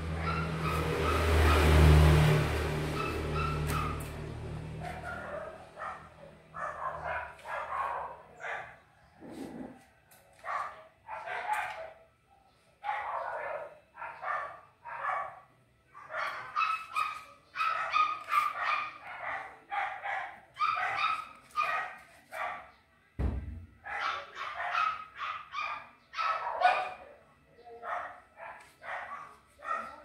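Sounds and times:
dull thump: 23.2s - 23.7s.

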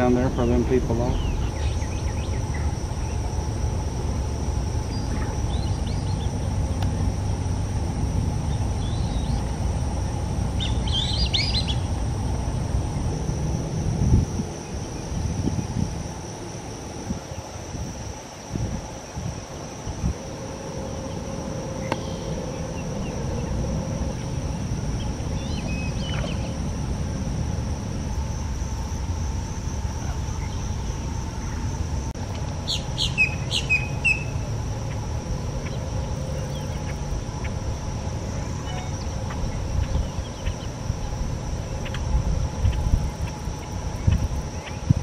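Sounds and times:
low rumble: 0.0s - 16.6s
high-pitched insect drone: 0.0s - 45.0s
sharp bird chirps: 10.6s - 11.9s, 32.7s - 34.4s.

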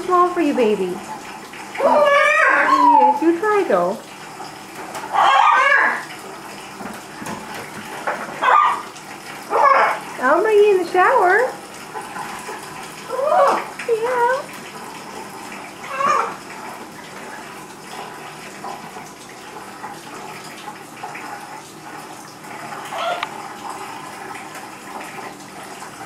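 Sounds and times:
tap running into a sink: 3.1s - 5.2s, 5.9s - 26.0s
macaw calls: 5.2s - 6.0s.

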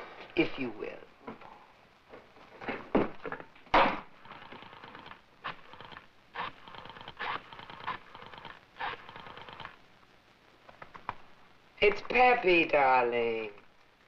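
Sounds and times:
rotary telephone dial clicking: 4.3s - 9.7s.

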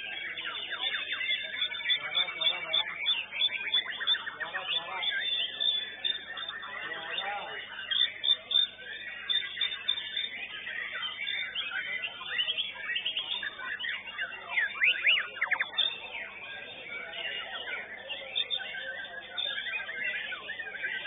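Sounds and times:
birds whistling and chattering: 0.0s - 21.0s.

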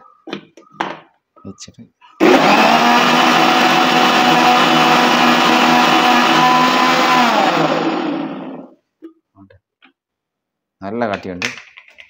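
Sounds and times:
blender running: 2.2s - 8.8s.

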